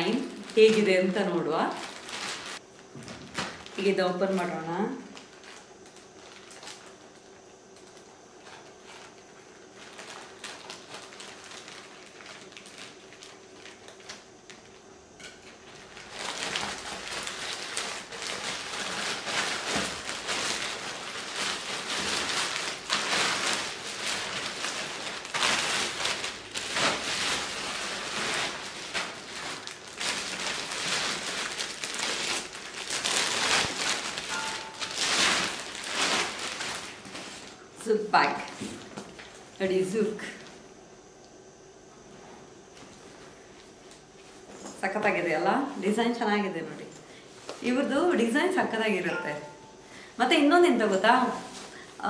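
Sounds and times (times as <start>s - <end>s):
plastic crinkling: 0.0s - 40.6s.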